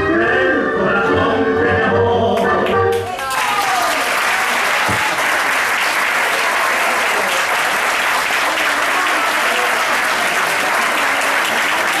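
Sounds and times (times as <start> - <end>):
audience applauding: 2.9 - 12.0.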